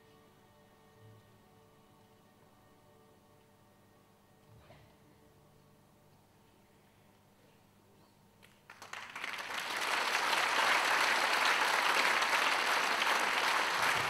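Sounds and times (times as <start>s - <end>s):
audience applauding: 8.5s - 14.0s.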